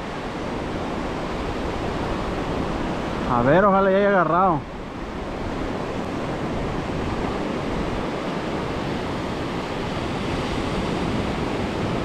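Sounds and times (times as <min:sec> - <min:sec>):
ocean surf breaking on beach: 0:00.0 - 0:12.0
wind buffeting microphone: 0:04.6 - 0:12.0.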